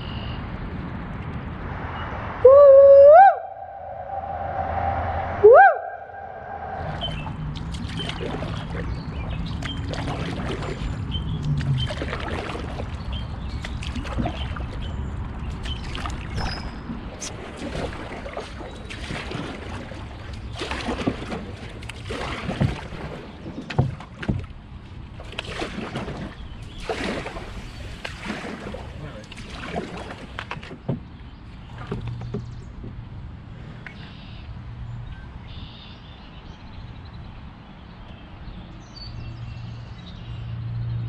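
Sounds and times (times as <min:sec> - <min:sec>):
steady low rumble: 0:00.6 - 0:09.6
sharp splashes or knocks: 0:06.8 - 0:14.9, 0:15.5 - 0:31.1
paddle strokes in water: 0:06.8 - 0:33.0.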